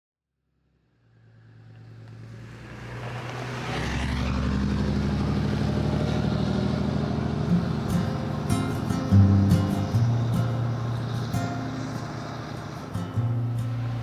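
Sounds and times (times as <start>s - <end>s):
truck engine hum: 0.6s - 14.0s.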